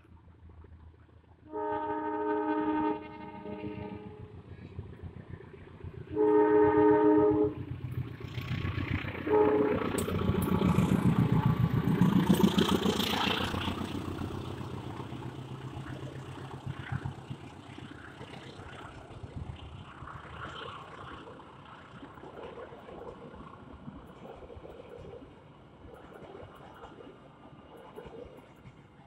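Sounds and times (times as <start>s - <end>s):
locomotive horn blast: 1.5s - 4.2s, 6.1s - 7.6s, 9.2s - 11.8s
locomotive engine rumble: 2.1s - 22.2s
train wheels clattering over rail joints: 9.8s - 19.2s.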